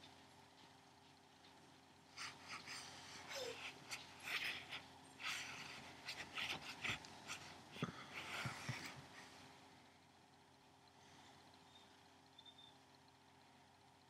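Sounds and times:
cat sniffing and rustling: 0.0s - 9.8s.

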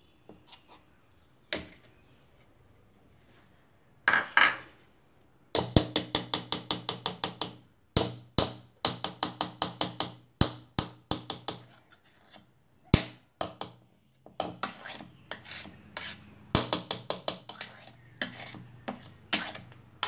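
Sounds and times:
metal spoon tapping cake tin: 5.6s - 11.8s, 13.0s - 13.8s, 16.6s - 19.8s.

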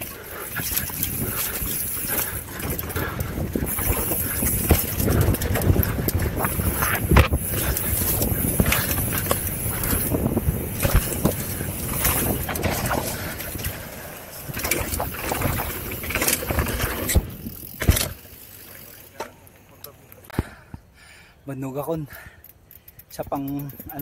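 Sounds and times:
bike rattling over bumps: 0.0s - 20.7s
tyres rolling on dirt trail: 0.0s - 24.0s
wind rushing over microphone: 0.6s - 17.7s.

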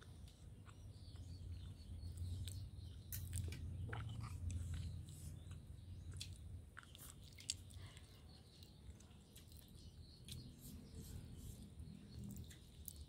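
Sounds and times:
faint chewing: 0.0s - 13.0s.

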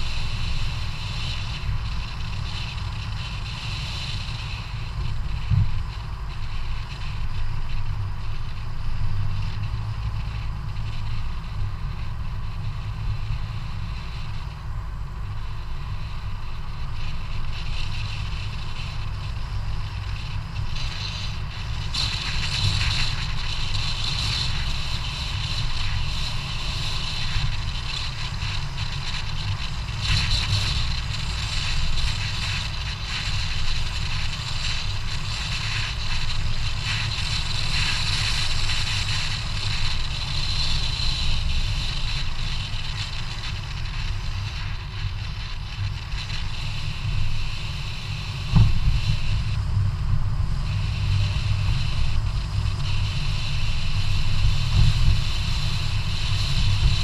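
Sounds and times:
wind buffeting microphone: 15.2s - 57.0s.

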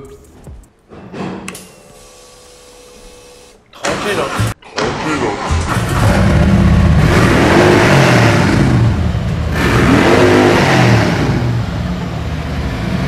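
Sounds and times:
motorcycle engine revving: 5.4s - 13.0s.

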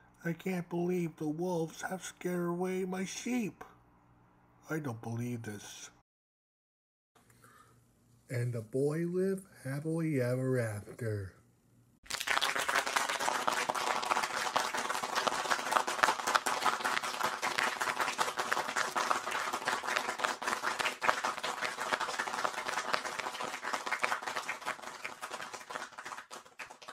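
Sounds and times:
applause: 12.0s - 26.9s.

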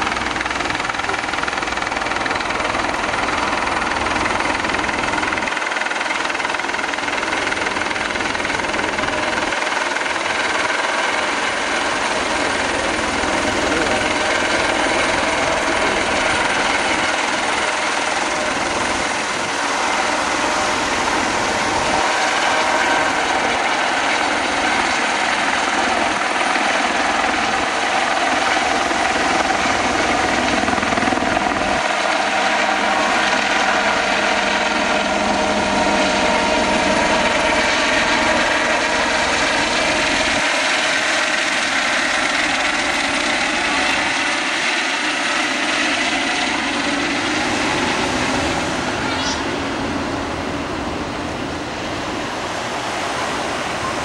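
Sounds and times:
helicopter rotor and turbine: 0.0s - 54.0s.

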